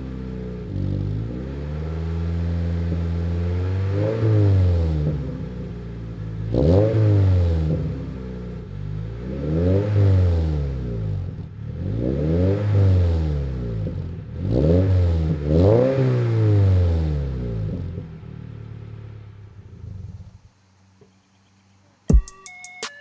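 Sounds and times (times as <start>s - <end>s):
car engine idling: 0.0s - 12.4s, 13.0s - 21.4s
car engine revving: 0.0s - 20.6s.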